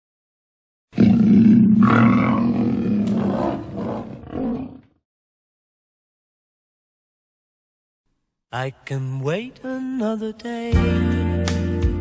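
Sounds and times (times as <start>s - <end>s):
lion roaring: 0.9s - 5.0s.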